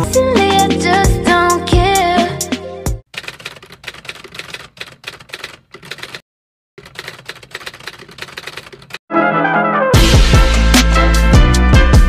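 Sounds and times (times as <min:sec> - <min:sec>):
music: 0:00.0 - 0:03.0, 0:09.1 - 0:12.0
rapid typewriter keystrokes: 0:03.1 - 0:06.2, 0:06.8 - 0:09.0.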